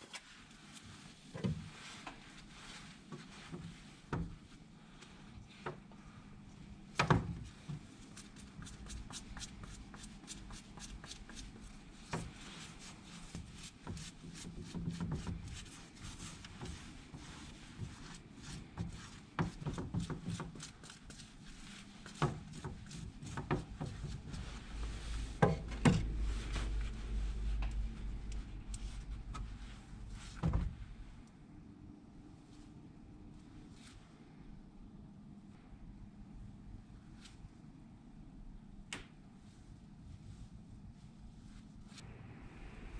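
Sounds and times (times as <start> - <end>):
hands rubbing shoe soles: 8.0 - 25.4.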